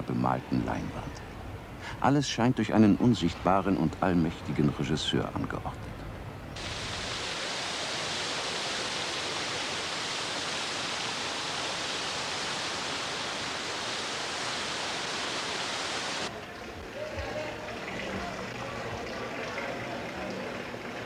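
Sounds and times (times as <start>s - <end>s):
fountain water splashing: 6.6s - 21.0s.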